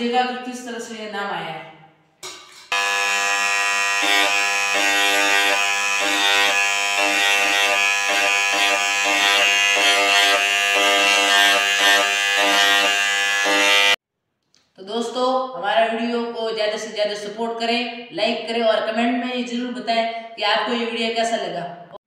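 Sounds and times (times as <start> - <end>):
electric engraving pen buzzing on steel: 2.7 - 14.0.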